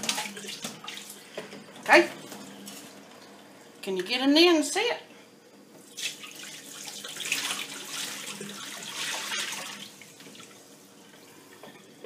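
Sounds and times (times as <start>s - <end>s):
water pouring into a steel sink: 6.0s - 10.7s.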